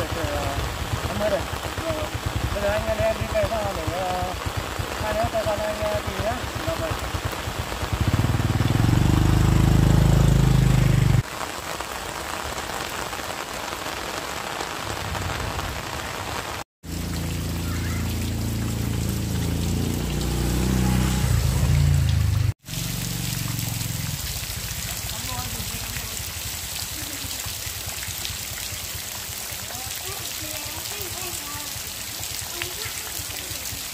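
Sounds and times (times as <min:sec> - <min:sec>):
motorbike engine: 0:00.0 - 0:11.2, 0:17.0 - 0:25.8
steady rain hiss: 0:00.0 - 0:33.9.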